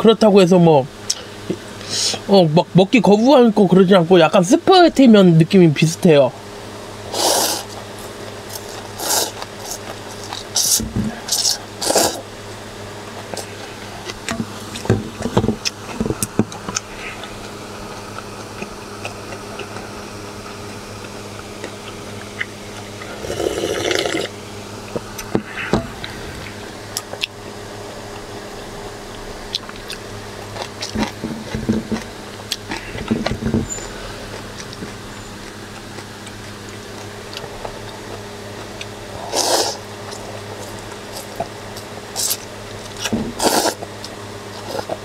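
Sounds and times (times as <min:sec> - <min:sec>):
steady low hum: 0:00.0 - 0:45.0
noodle slurp: 0:07.1 - 0:07.8, 0:08.5 - 0:12.3, 0:22.8 - 0:24.3, 0:39.2 - 0:39.8, 0:43.4 - 0:43.8
person chewing: 0:07.1 - 0:12.3, 0:15.6 - 0:45.0.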